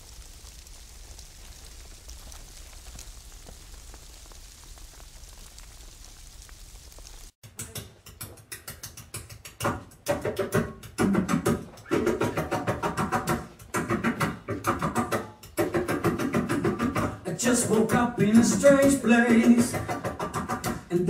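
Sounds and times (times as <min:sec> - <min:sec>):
crackling hiss: 0:00.0 - 0:07.4, 0:11.0 - 0:21.0
scratchy guitar strums: 0:09.6 - 0:21.0.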